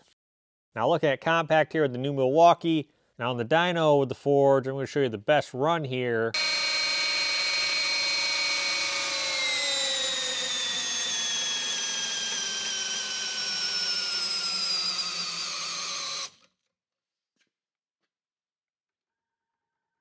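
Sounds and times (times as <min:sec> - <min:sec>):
cordless drill motor whine: 0:06.4 - 0:16.5.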